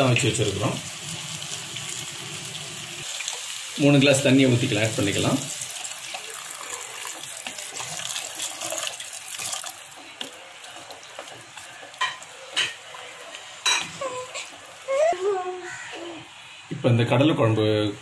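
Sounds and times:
water pouring into pot: 0:00.0 - 0:12.2
spatula stirring curry: 0:04.5 - 0:14.8.

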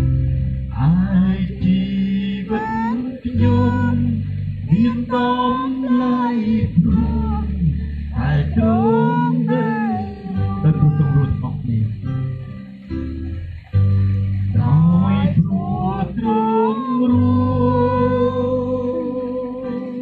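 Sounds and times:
man singing into a microphone: 0:00.7 - 0:12.0, 0:14.5 - 0:20.0.

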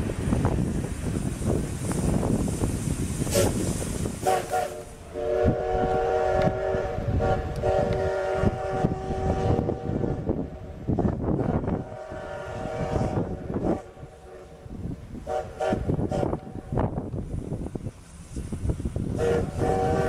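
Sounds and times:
train rumbling past: 0:00.0 - 0:20.0
steam whistle blast: 0:03.3 - 0:10.2, 0:11.6 - 0:14.6, 0:15.2 - 0:16.6, 0:19.2 - 0:20.0.

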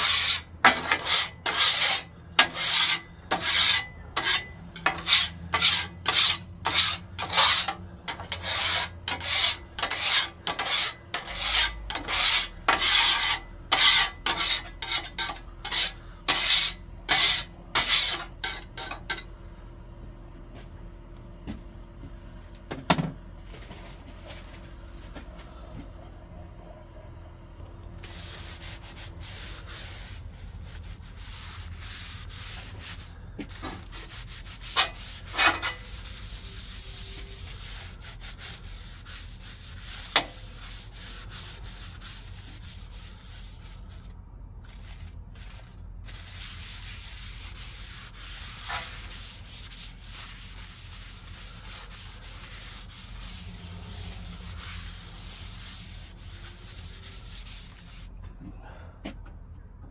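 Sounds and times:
paper towel wiping griddle: 0:28.0 - 0:58.2.

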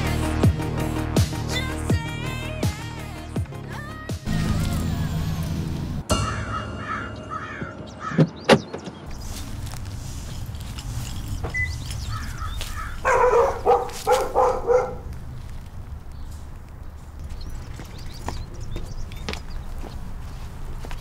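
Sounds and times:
low outdoor rumble: 0:09.1 - 0:17.6
dog barking: 0:12.9 - 0:15.1.

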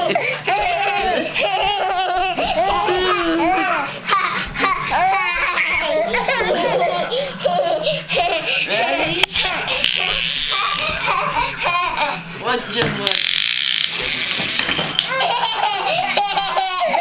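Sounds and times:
baby laughing: 0:00.0 - 0:12.2, 0:15.0 - 0:17.0
adults laughing: 0:06.1 - 0:07.6.

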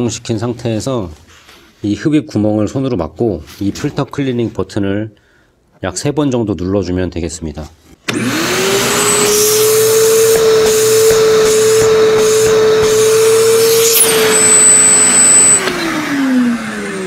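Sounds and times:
shop vacuum motor whining: 0:08.1 - 0:17.0
air pulses from filter cleaning: 0:08.8 - 0:15.8.

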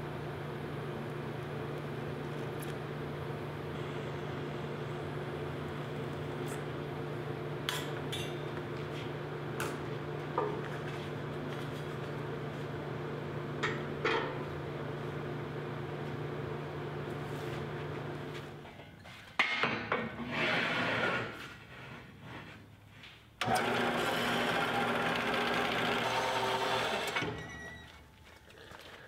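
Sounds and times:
steady low hum: 0:00.0 - 0:18.9.

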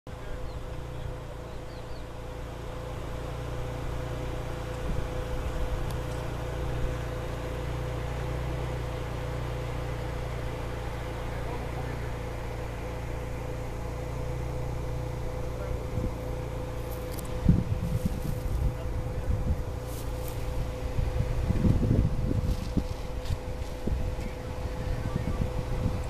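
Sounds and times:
low engine rumble: 0:00.0 - 0:26.0.

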